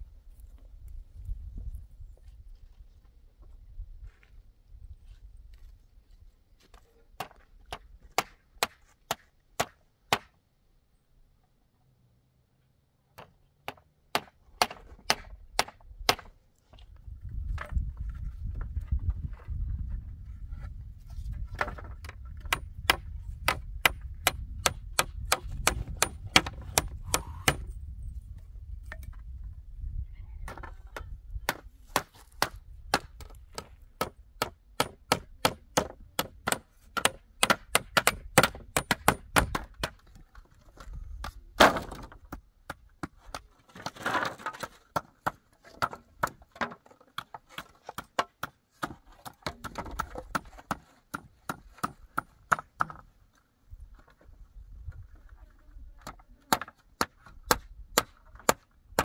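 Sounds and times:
wood being struck: 21.5 - 27.7, 30.5 - 40.0.

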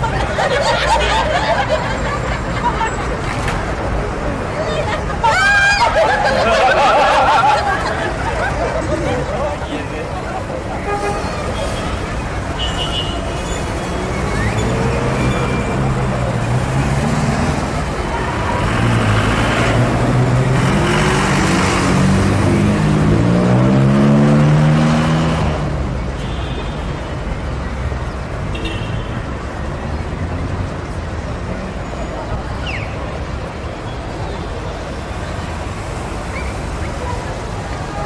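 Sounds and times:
street noise: 0.0 - 38.0
heavy vehicle engine accelerating: 13.6 - 26.0.

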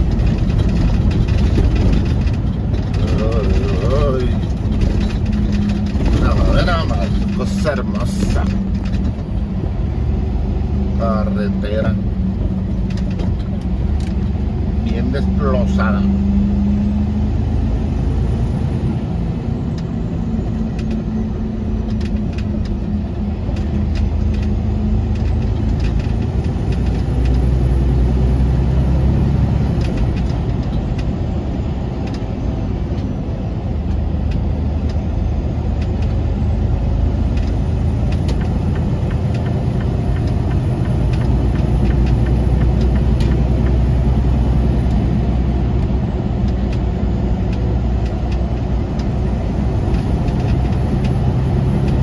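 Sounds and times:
truck engine and road rumble: 0.0 - 52.0.

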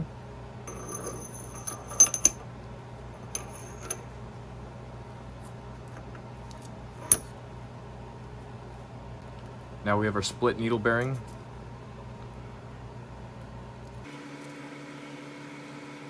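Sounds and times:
metal gears clinking: 0.7 - 2.4, 3.2 - 4.1, 6.0 - 7.3.

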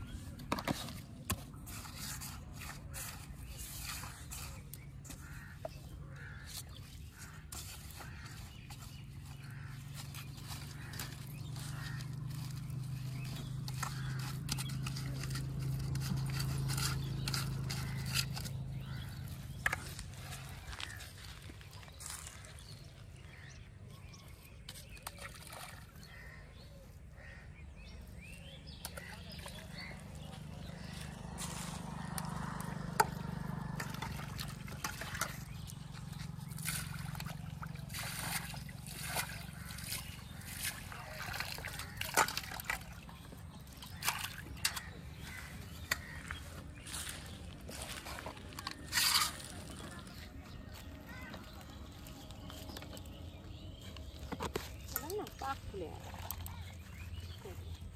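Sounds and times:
hands kneading bait in steel bowl: 0.0 - 26.6, 27.2 - 57.9
water trickling and splashing: 24.8 - 26.5, 28.9 - 50.1.

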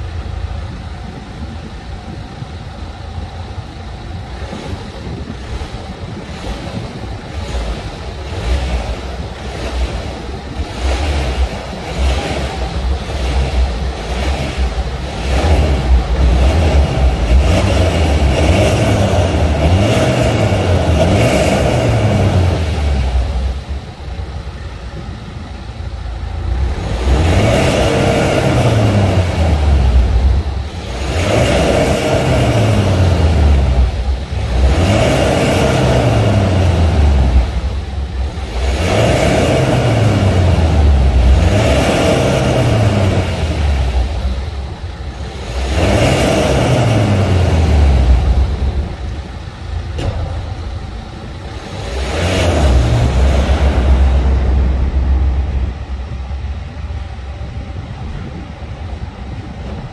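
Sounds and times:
car engine deep rumble: 0.0 - 59.9.

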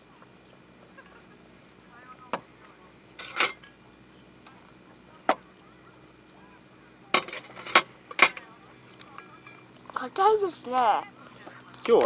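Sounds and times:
tableware clinking: 3.2 - 4.3, 9.1 - 9.7.

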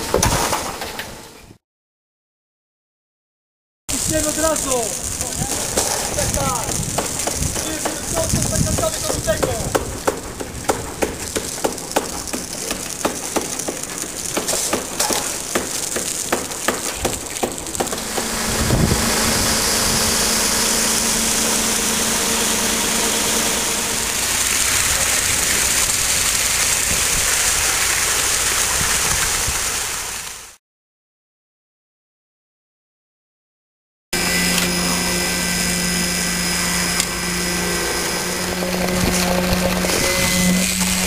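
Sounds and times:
high hiss of discharging concrete: 3.9 - 30.6, 34.2 - 41.0
concrete mixer truck engine hum: 10.0 - 30.2, 34.2 - 41.0.

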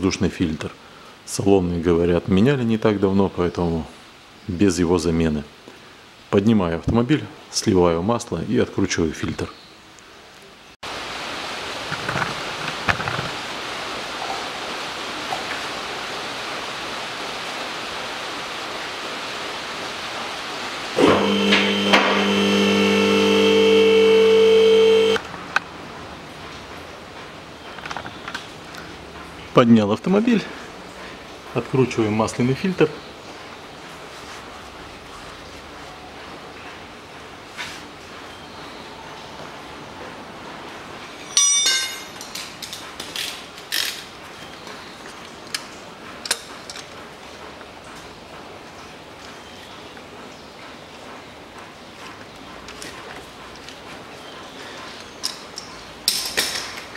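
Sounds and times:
background hiss: 0.0 - 25.8
hydraulic lift motor humming: 21.0 - 25.2
metallic clank: 41.2 - 42.4.

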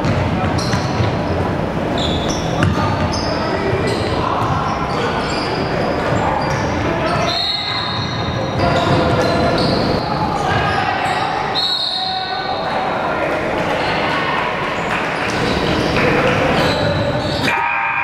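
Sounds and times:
basketball bouncing on court: 0.0 - 1.3, 2.2 - 4.8, 7.9 - 10.8
sneaker squeaks: 0.0 - 12.9, 14.8 - 17.8
echoing voices: 0.0 - 18.0.

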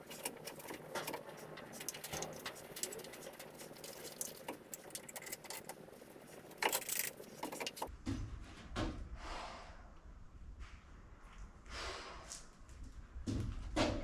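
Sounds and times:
hand tools clicking and rattling: 0.0 - 7.9.

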